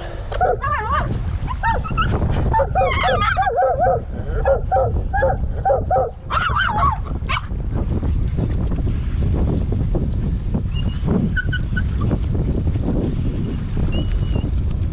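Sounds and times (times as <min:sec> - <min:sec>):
steady low rumble: 0:00.0 - 0:14.9
dogs whining and yelping: 0:00.4 - 0:07.5, 0:10.7 - 0:12.4.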